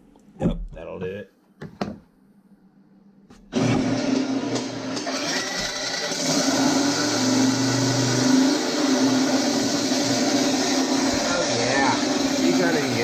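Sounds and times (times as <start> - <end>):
car engine starting and running: 3.5 - 13.0.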